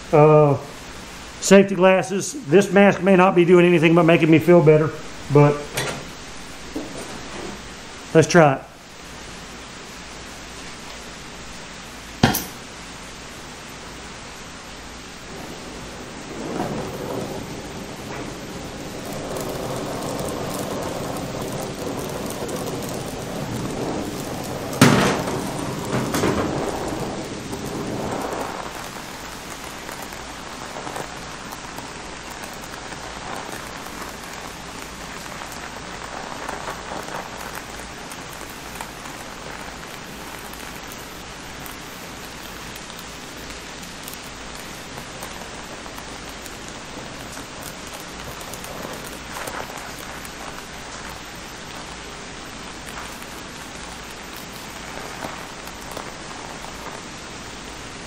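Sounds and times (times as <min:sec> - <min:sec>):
gas torch flame hissing: 0:00.0 - 0:58.0
sharp pop: 0:12.2 - 0:12.7.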